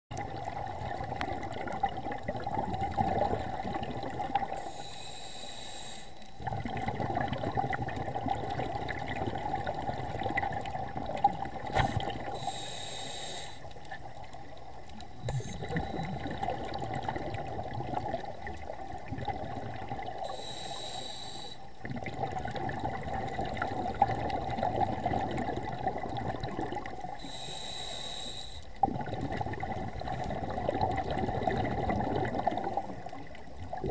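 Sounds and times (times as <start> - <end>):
exhaled bubbles rumbling: 0.1 - 4.7, 6.4 - 12.5, 13.8 - 20.3, 21.8 - 27.2, 28.7 - 33.9
regulator inhalation hiss: 4.6 - 6.3, 11.8 - 13.7, 20.2 - 21.7, 27.2 - 28.7.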